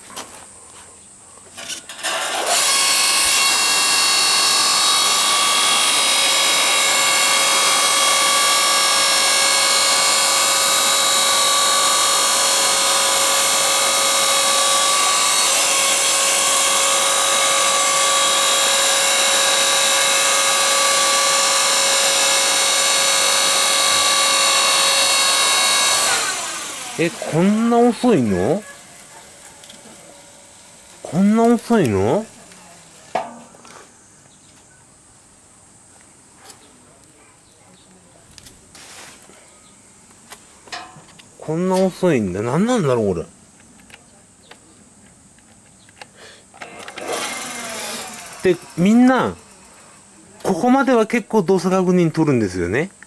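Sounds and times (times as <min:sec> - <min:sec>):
log splitter motor and pump whine: 0:01.6 - 0:33.8, 0:46.6 - 0:52.6.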